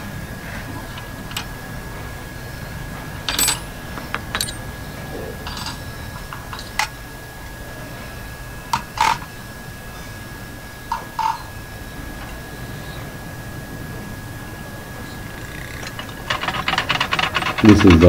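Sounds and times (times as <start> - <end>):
metal parts clinking on tray: 3.3 - 4.7, 5.4 - 6.9, 15.8 - 18.0.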